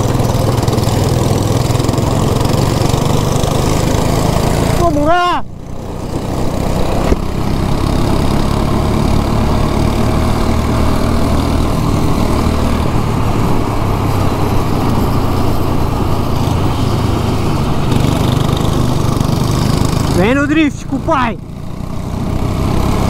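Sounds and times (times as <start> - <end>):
go-kart engine running: 0.0 - 23.0.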